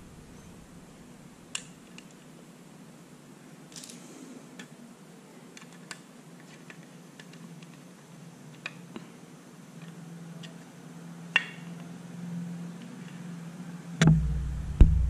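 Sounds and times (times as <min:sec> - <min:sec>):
low steady hum: 0:00.0 - 0:01.6, 0:09.4 - 0:15.0.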